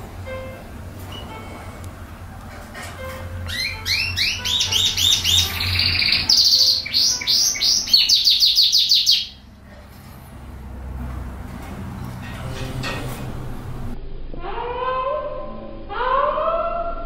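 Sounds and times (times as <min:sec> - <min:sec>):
canary singing: 0:03.0 - 0:09.6.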